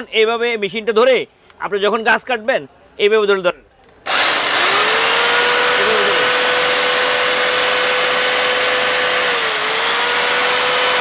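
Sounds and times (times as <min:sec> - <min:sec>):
electric chainsaw high whine: 0:04.1 - 0:11.0.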